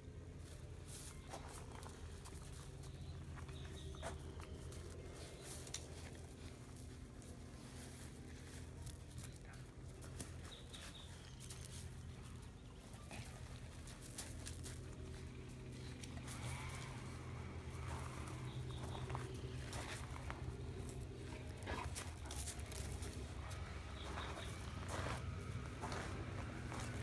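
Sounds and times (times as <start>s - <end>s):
steady low hum: 0.0s - 27.0s
dogs scuffling on gravel: 0.4s - 27.0s.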